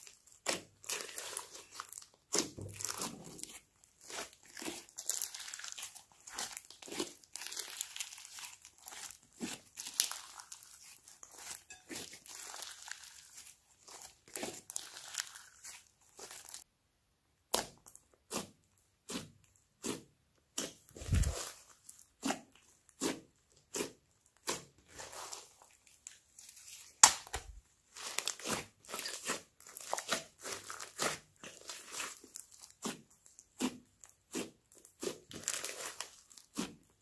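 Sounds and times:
slime squelching and popping: 0:00.0 - 0:16.7, 0:17.4 - 0:37.0
sharp slime pop: 0:27.0 - 0:27.6.

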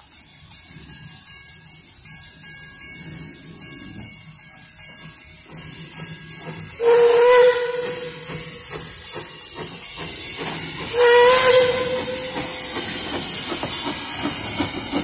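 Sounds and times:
steam locomotive whistle: 0:06.8 - 0:08.6, 0:10.9 - 0:12.5.

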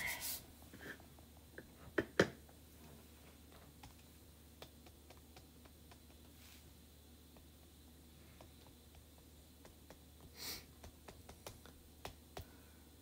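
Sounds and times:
light taps of dabbing: 0:03.8 - 0:06.3, 0:07.3 - 0:12.6.

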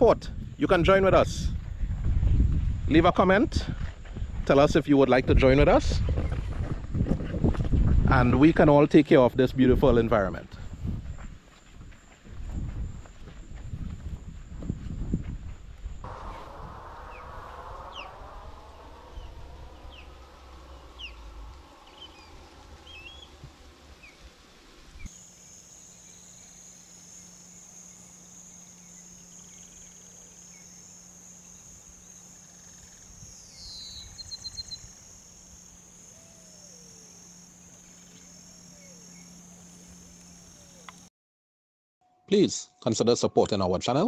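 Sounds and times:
low steady hum: 0:10.2 - 0:41.1
high-pitched insect drone: 0:10.8 - 0:41.1
bird falling call with trill: 0:16.1 - 0:23.4
short bird chirps: 0:32.0 - 0:35.0.

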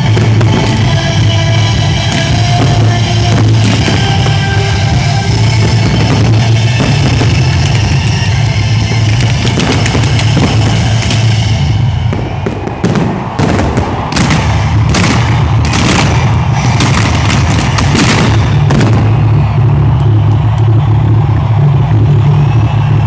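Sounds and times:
firework bangs and crackles: 0:00.0 - 0:23.0
steady low rumble: 0:00.0 - 0:23.0.

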